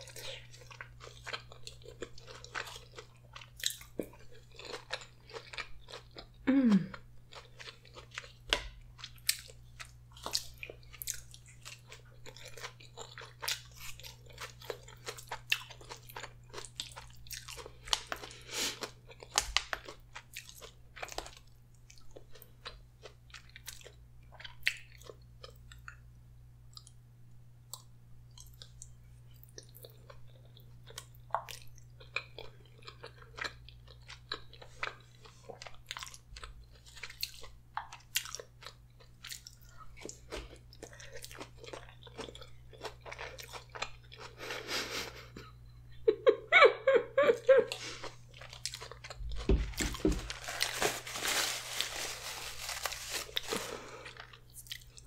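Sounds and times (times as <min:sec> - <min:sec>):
person chewing spaghetti: 0:00.0 - 0:26.1, 0:26.7 - 0:27.0, 0:27.7 - 0:45.6, 0:47.3 - 0:55.0.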